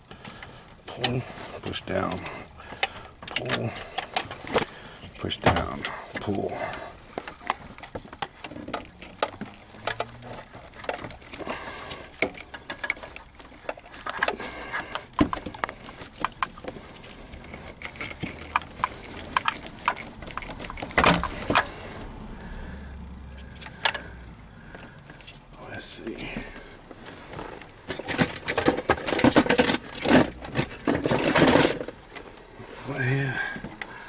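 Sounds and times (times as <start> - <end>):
handling rattles: 0.1 - 22.6, 23.3 - 34.0
plastic connectors clicking: 7.1 - 21.7.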